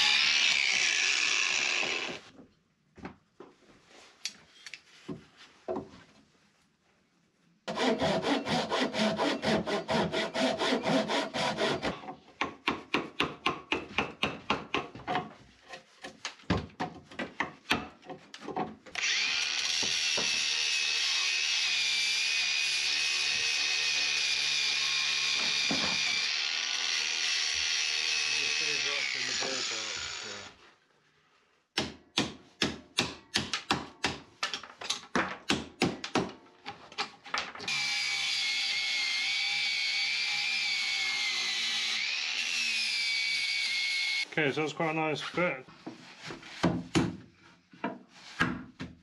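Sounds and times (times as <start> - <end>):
angle grinder on wood: 0.0 - 2.2, 7.7 - 12.0, 19.0 - 30.6, 37.7 - 44.3
saw cutting wood: 0.0 - 2.3, 7.7 - 12.0, 19.0 - 30.6, 37.7 - 44.3.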